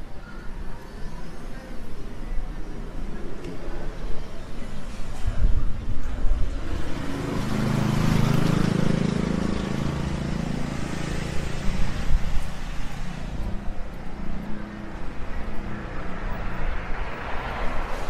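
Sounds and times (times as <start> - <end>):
steady traffic noise: 0.0 - 18.0
vehicle engine passing: 6.6 - 18.0.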